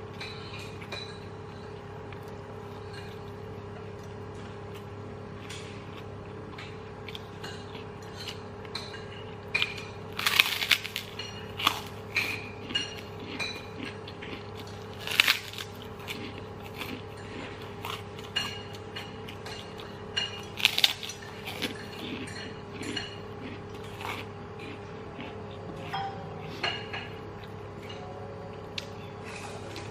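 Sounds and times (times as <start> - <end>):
chewing crackles and mouth clicks: 0.0 - 29.9
cracker crunching: 1.6 - 25.9
low hum: 25.7 - 29.9.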